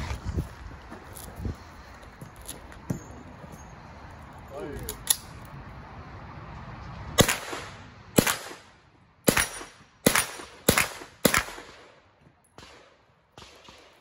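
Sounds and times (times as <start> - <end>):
carbine gunshots with echo: 7.2 - 14.0.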